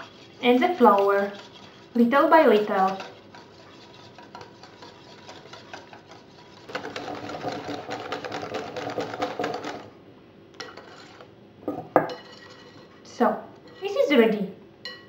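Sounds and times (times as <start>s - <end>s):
whisk clattering in glass bowl: 0.0s - 9.9s.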